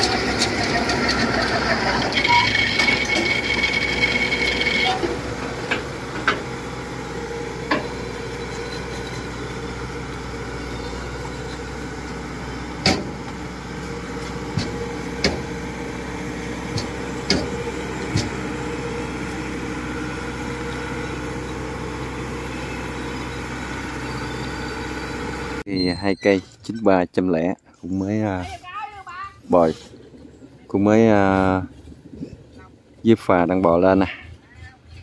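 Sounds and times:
combine harvester engine running: 0.0 - 26.0.

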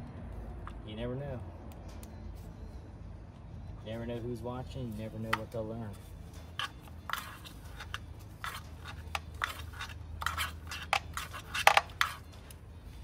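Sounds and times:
clicks taps and scrapes: 6.6 - 12.5.

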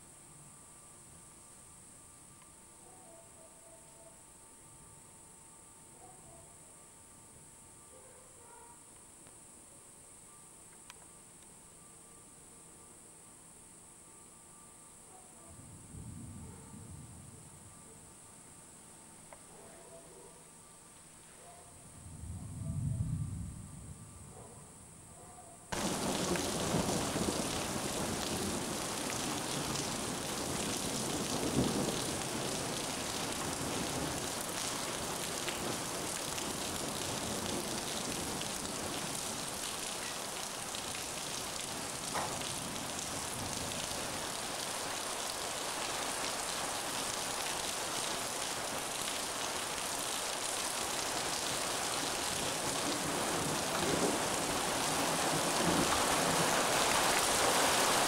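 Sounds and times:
faint click: 10.7 - 11.5
heavy rain pouring: 25.7 - 58.0.

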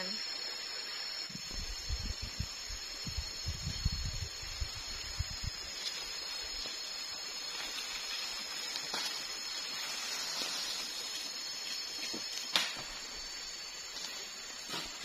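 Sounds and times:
forest insects droning: 0.0 - 15.0
light crackles: 5.7 - 13.1
sharp snap: 12.5 - 12.8.

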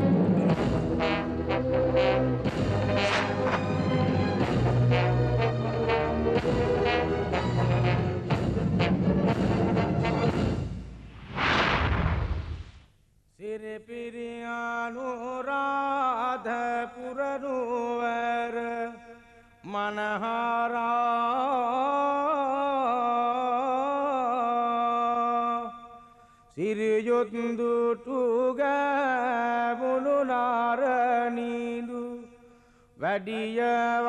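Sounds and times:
person chanting: 33.0 - 34.0.

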